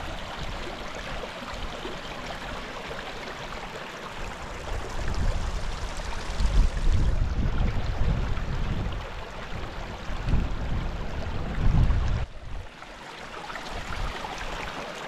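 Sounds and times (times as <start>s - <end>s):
stream babbling over stones: 0.0s - 15.0s
wind rumble on microphone: 4.4s - 12.7s.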